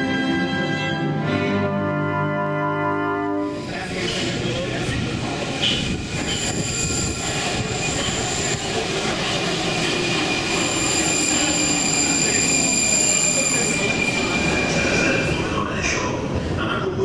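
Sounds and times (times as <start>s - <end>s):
metro train rumbling: 0.0s - 17.0s
high steady squeal: 10.2s - 15.3s.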